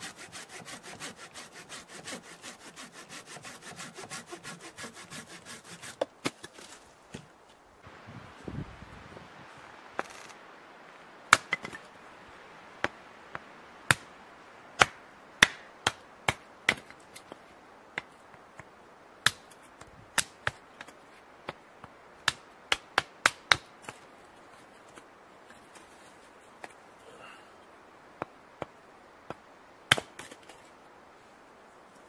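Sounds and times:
hatchet chopping wood: 0:11.3 - 0:11.8, 0:13.9 - 0:14.1, 0:14.8 - 0:17.3, 0:20.2 - 0:20.9, 0:22.2 - 0:23.7, 0:29.3 - 0:30.4.

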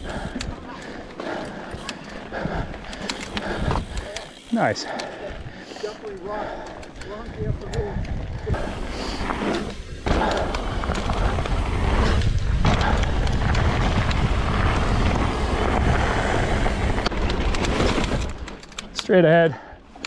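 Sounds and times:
bike rattling and clicking: 0:00.0 - 0:20.0
bike tyres on dirt trail: 0:00.0 - 0:20.0
wind rumble on microphone: 0:07.0 - 0:18.4.

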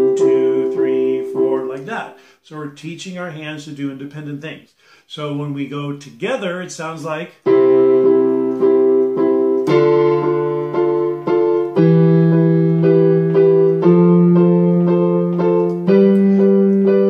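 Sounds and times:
electronic keyboard piano chords: 0:00.0 - 0:02.2, 0:07.4 - 0:17.0.

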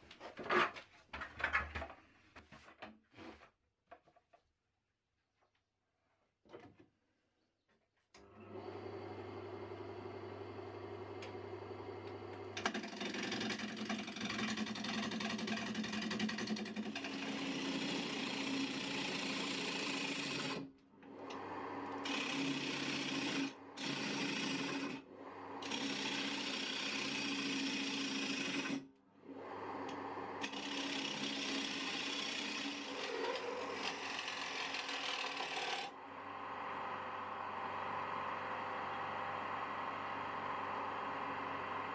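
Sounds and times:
lathe motor humming: 0:08.7 - 0:41.9
turning tool scraping wood: 0:12.6 - 0:20.7, 0:22.0 - 0:25.0, 0:25.6 - 0:28.8, 0:30.4 - 0:36.0.

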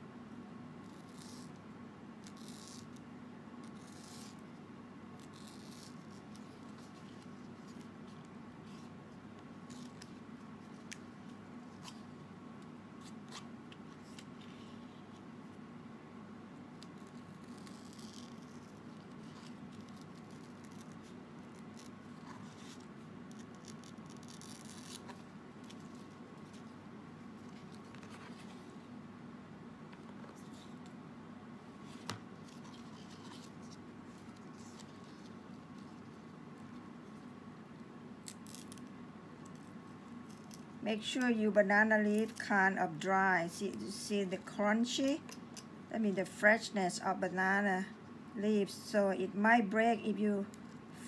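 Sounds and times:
steady low hum: 0:00.0 - 0:51.0.

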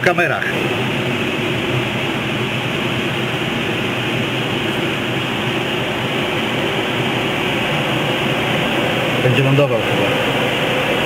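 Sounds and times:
air rushing over camera: 0:00.5 - 0:11.0.

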